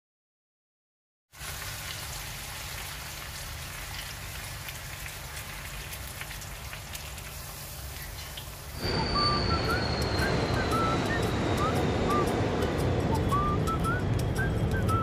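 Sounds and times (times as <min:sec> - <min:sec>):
meat sizzling in frying pan: 0:01.4 - 0:08.8.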